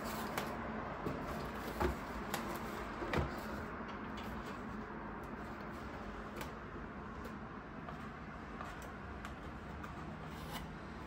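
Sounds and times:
cardboard knocks and scrapes: 0:00.0 - 0:03.7.

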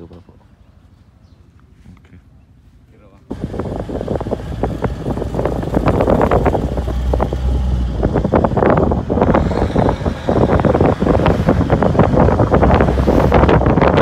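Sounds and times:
moving pickup truck rumble: 0:03.3 - 0:14.0
wind buffeting microphone: 0:03.3 - 0:14.0.

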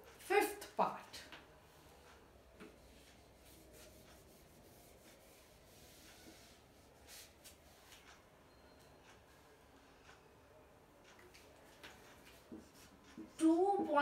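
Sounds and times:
eraser rubbing on whiteboard: 0:02.9 - 0:08.0.

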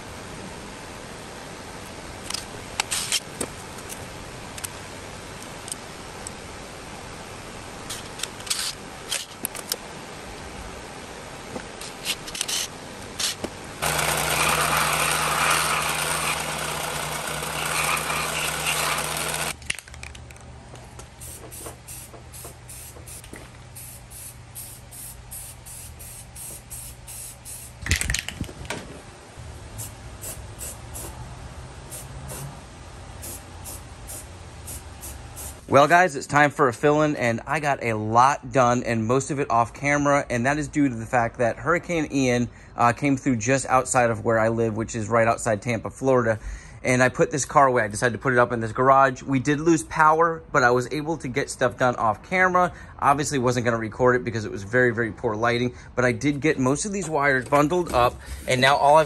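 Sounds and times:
belt sander running: 0:13.8 - 0:19.6.

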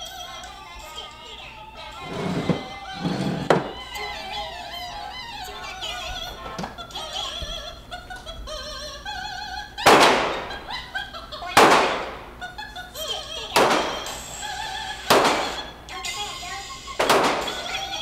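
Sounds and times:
music with operatic singing: 0:00.0 - 0:18.0
pistol shots echoing indoors: 0:09.8 - 0:10.7, 0:11.6 - 0:12.4, 0:13.6 - 0:15.8, 0:16.9 - 0:18.0.

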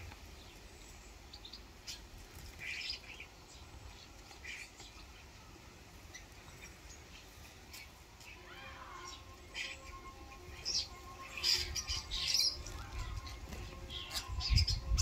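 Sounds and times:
starlings giving short high calls: 0:06.1 - 0:15.0.

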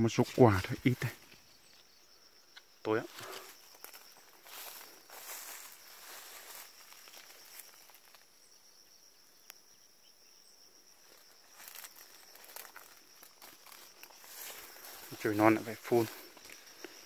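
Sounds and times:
insects chirring: 0:00.0 - 0:17.0
soft rustling: 0:03.1 - 0:08.3, 0:11.0 - 0:17.0.

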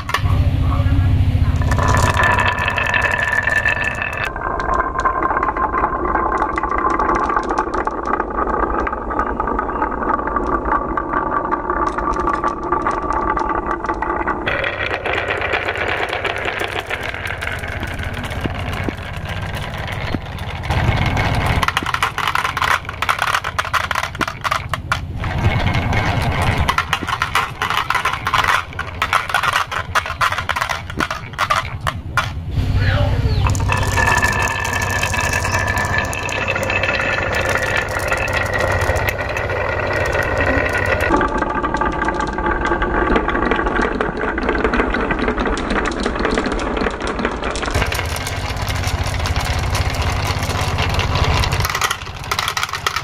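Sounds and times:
marbles rolling down tracks: 0:00.0 - 0:00.3, 0:01.5 - 0:53.0
marbles clacking: 0:00.0 - 0:53.0.

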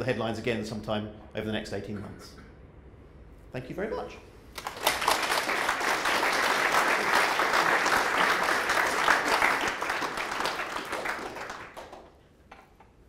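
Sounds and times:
audience applauding: 0:04.6 - 0:12.2.

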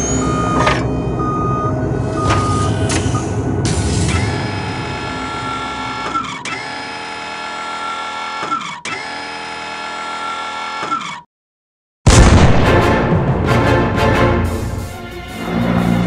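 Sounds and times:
motorised whirring: 0:04.0 - 0:11.2.

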